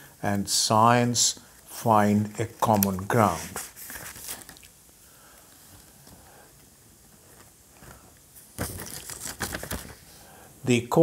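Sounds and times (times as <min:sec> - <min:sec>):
faint room hiss: 0:00.0 - 0:11.0
soft clicks and rustles: 0:02.6 - 0:10.1.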